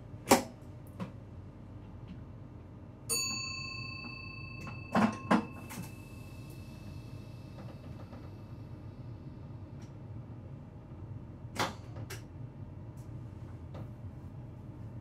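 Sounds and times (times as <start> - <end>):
low hum of stationary train: 0.0 - 15.0
bell-like ding: 3.1 - 8.1.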